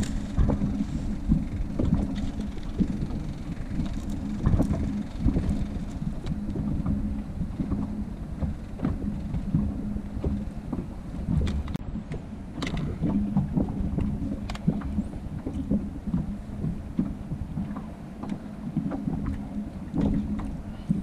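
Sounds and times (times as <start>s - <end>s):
steady low hum: 0.0s - 21.0s
wind buffeting microphone: 0.0s - 21.0s
light clicks and knocks: 7.6s - 21.0s.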